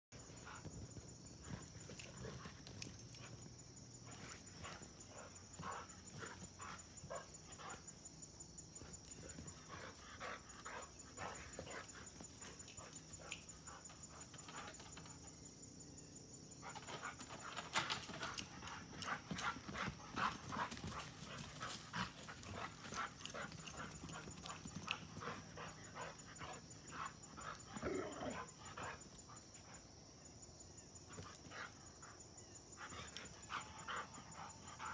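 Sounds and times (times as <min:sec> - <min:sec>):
dogs scuffling and playing: 0:00.2 - 0:07.9, 0:08.6 - 0:15.2, 0:16.6 - 0:27.7.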